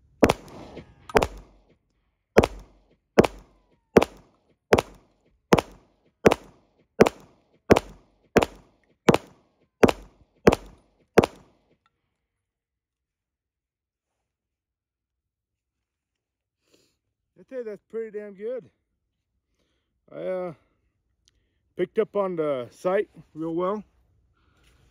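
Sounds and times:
pistol shots: 0.0 - 1.6, 2.4 - 11.5.

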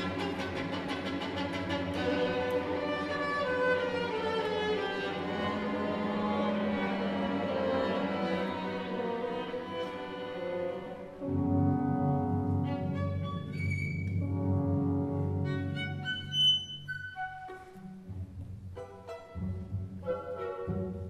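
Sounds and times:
solo violin: 0.0 - 11.4, 15.0 - 18.1, 18.7 - 21.0
orchestra accompaniment: 0.0 - 21.0.

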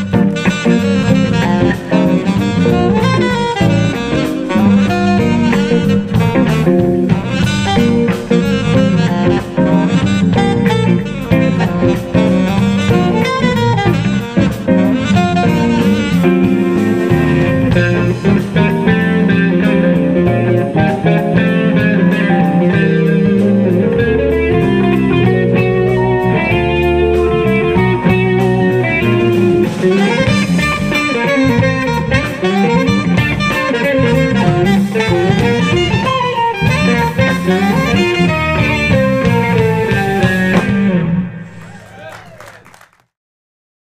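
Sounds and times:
electric bass: 0.0 - 42.1
electric guitar: 0.0 - 42.8
drum kit: 0.0 - 43.0
keyboard: 0.0 - 43.0.

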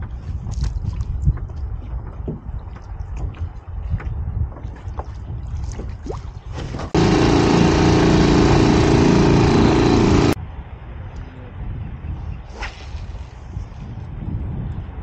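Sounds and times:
wind noise: 0.0 - 7.0, 10.4 - 15.0
outboard motor running: 6.7 - 10.4.

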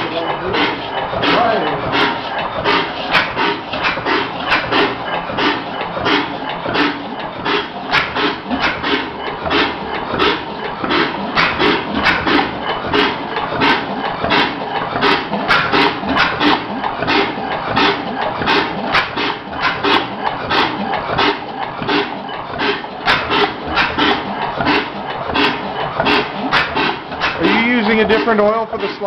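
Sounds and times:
constant mechanical noise: 0.0 - 29.0
old engine clattering slowly: 0.0 - 29.0.

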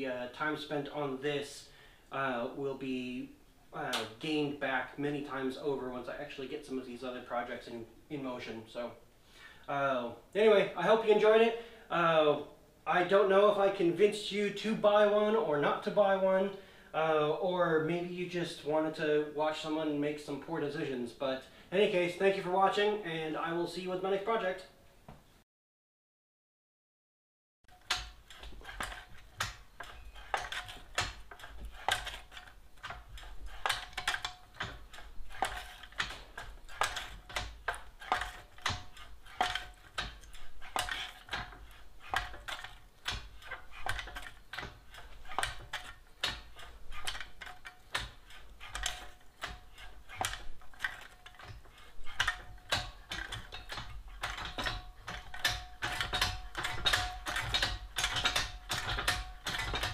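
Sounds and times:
metal shrinker jaws clacking: 27.8 - 59.9.

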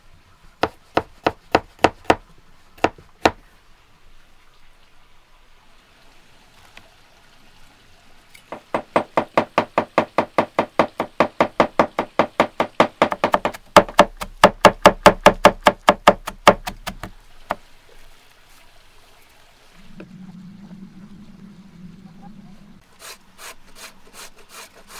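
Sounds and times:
knife chopping on wooden board: 0.6 - 2.2, 8.6 - 17.2.

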